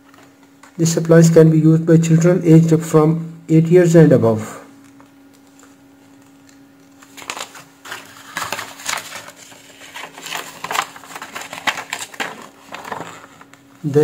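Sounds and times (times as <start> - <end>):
paper rustling and crackling: 5.0 - 13.7.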